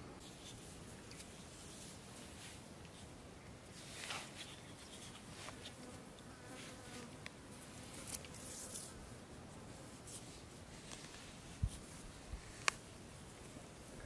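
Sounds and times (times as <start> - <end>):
twig scratching in sand: 3.7 - 5.8.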